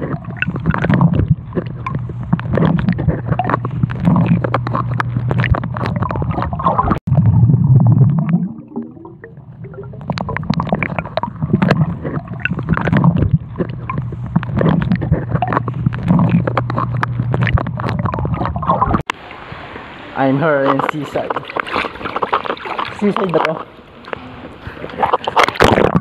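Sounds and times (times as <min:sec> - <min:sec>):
underwater bubbles gurgling: 0:00.0 - 0:19.3
low underwater hum: 0:00.0 - 0:26.0.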